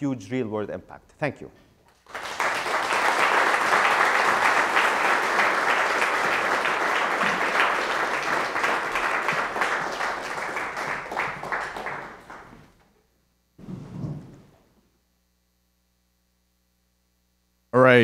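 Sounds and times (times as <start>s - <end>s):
audience applauding: 1.9s - 12.8s.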